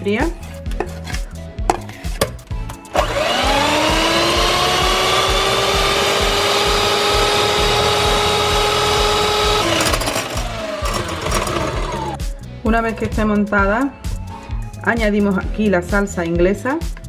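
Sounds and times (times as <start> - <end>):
electric hand mixer whine: 2.9 - 12.2.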